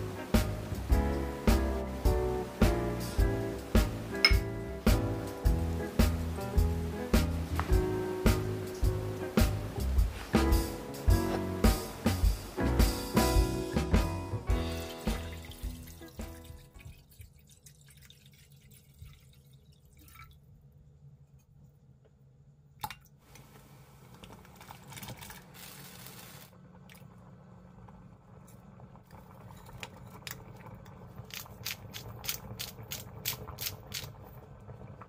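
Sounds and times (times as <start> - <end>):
water pouring into a pot: 14.6 - 20.5, 24.2 - 27.1
soup boiling and bubbling: 14.6 - 20.6, 23.2 - 35.0.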